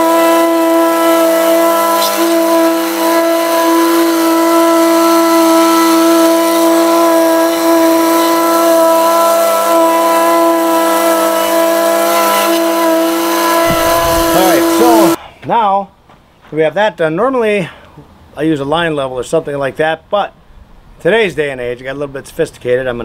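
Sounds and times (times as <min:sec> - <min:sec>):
plate compactor engine running: 0:00.0 - 0:15.2.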